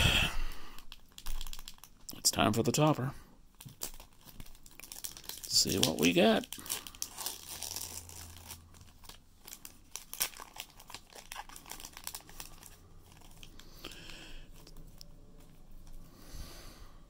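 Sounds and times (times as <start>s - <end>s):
foil wrapper tearing and crinkling: 0.8s - 2.0s, 3.6s - 13.8s.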